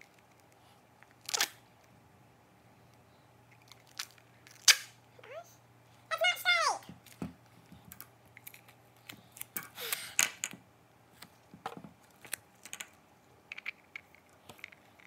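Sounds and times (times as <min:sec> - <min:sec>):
handling clicks and crinkles: 0:00.0 - 0:02.0, 0:02.9 - 0:04.7, 0:07.0 - 0:15.0
duct tape ripping: 0:01.2 - 0:01.6, 0:03.9 - 0:05.0.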